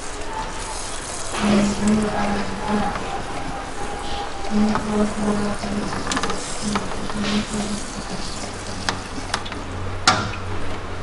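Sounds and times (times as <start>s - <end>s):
water spraying with a hiss: 0.0s - 10.1s
sharp clicks and knocks: 8.8s - 10.8s.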